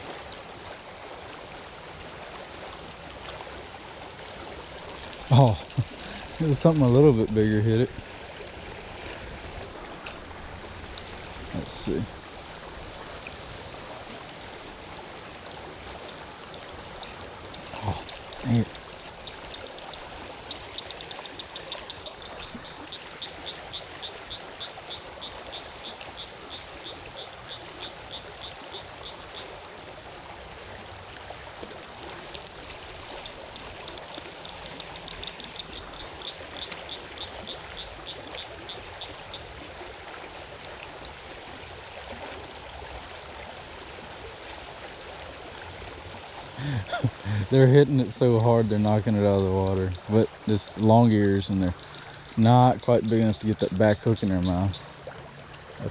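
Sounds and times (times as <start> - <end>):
creek water running: 0.0 - 55.9.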